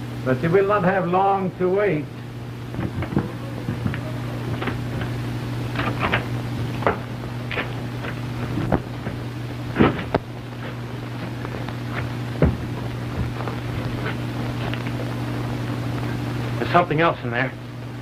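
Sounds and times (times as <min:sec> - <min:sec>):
old soundtrack hum and hiss: 0:00.0 - 0:18.0
hard object striking stone wall: 0:02.7 - 0:05.2, 0:09.8 - 0:14.1.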